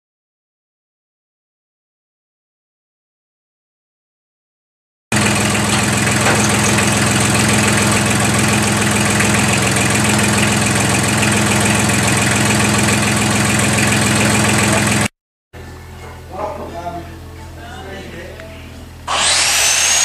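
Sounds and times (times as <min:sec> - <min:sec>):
tractor engine idling: 0:05.1 - 0:15.1.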